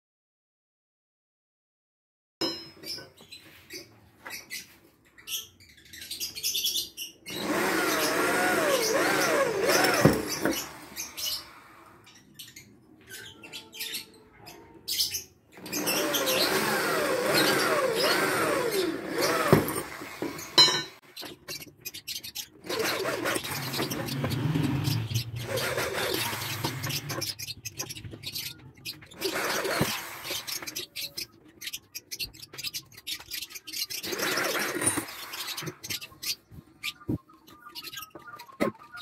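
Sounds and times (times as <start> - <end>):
power drill squealing in metal: 7.3 - 11.6, 15.6 - 20.7, 22.6 - 28.0, 29.1 - 31.1, 34.0 - 36.1.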